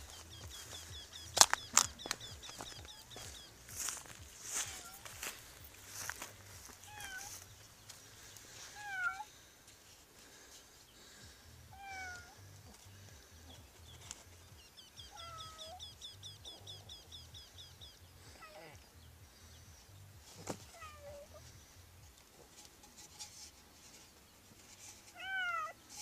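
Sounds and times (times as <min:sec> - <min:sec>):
cat meowing inside tin can: 0:06.9 - 0:07.3, 0:08.8 - 0:09.3, 0:11.8 - 0:12.4, 0:15.1 - 0:15.8, 0:20.7 - 0:21.4, 0:24.9 - 0:25.8.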